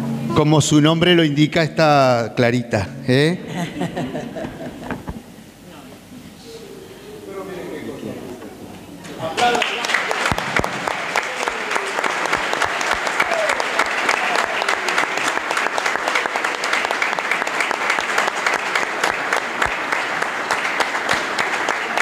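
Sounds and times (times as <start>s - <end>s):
faint voices: 5.6s - 9.4s
congregation applauding: 9.0s - 22.0s.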